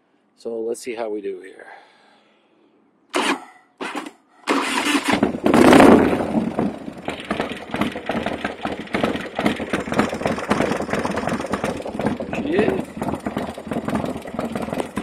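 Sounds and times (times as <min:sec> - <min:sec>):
motorcycle engine starting: 0:03.1 - 0:15.0
motorcycle engine revving: 0:03.2 - 0:15.0
motorcycle engine idling: 0:04.6 - 0:15.0.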